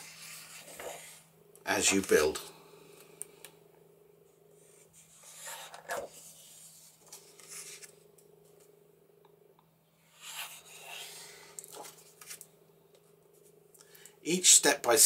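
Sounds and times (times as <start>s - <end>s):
book pages rustling: 0.0s - 1.2s, 4.9s - 8.0s, 10.2s - 12.5s
faint steady hum: 0.0s - 15.0s.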